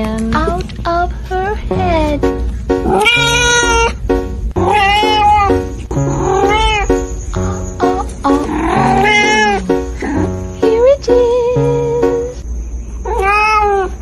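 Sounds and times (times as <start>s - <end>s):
background music: 1.6s - 12.4s
cat meowing: 2.8s - 4.0s, 4.6s - 5.6s, 6.2s - 6.9s, 8.3s - 9.6s, 13.0s - 14.0s.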